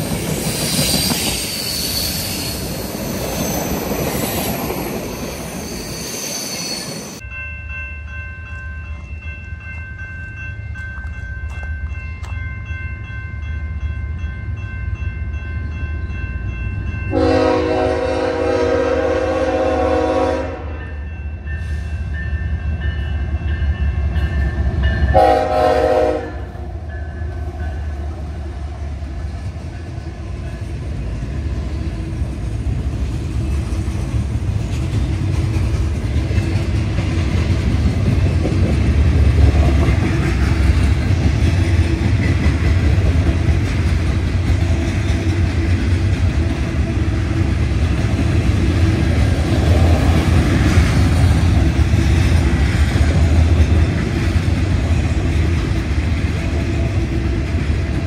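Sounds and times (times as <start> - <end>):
train rumble and wheel clatter: 0.0 - 58.0
diesel locomotive horn: 17.1 - 21.0, 25.1 - 26.8.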